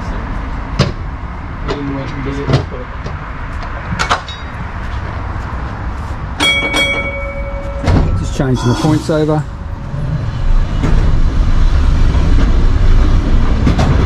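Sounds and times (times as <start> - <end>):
tram motor and wheel rumble: 0.0 - 14.0
clear ringing tone: 6.4 - 9.7.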